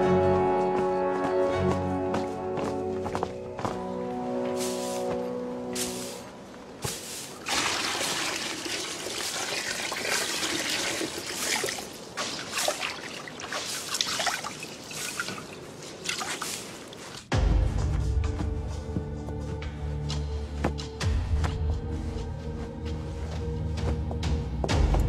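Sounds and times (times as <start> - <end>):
music: 0.0 - 6.9, 17.3 - 25.0
water sloshing in basin: 7.4 - 17.2.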